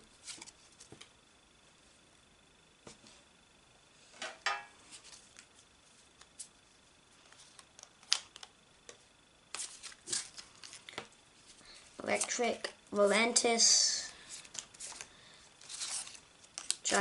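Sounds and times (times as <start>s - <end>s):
trading cards rustling and clicking: 9.5s - 11.1s, 14.3s - 17.0s.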